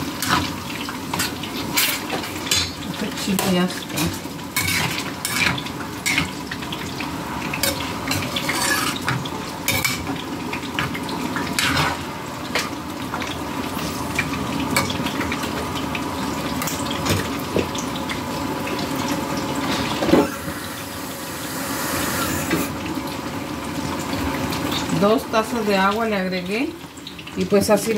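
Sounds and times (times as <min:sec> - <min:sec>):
spoon scraping a frying pan: 0:03.4 - 0:06.3, 0:07.6 - 0:10.1
simmering liquid hissing: 0:19.6 - 0:23.1.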